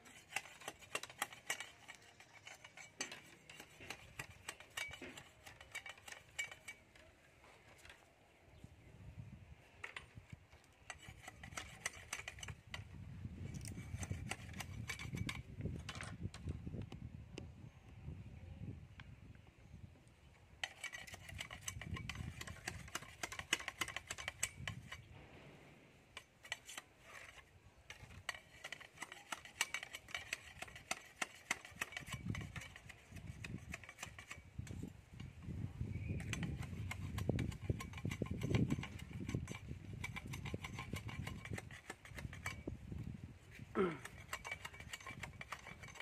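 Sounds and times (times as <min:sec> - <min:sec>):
knife scraping fish: 0:00.0 - 0:06.9, 0:10.8 - 0:12.6, 0:20.6 - 0:25.1, 0:26.4 - 0:34.5, 0:36.3 - 0:42.6, 0:44.0 - 0:46.0.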